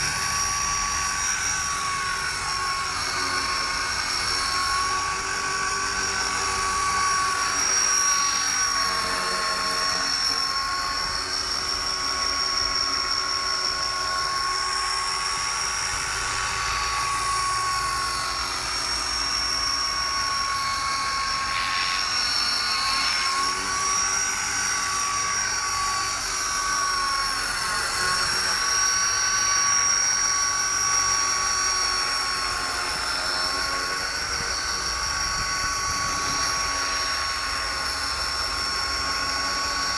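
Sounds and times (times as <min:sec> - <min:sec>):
rc helicopter whine: 0:00.0 - 0:39.9.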